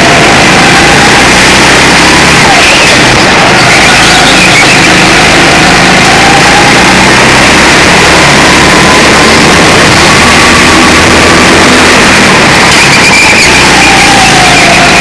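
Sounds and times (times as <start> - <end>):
go-kart engine running: 0.0 - 15.0.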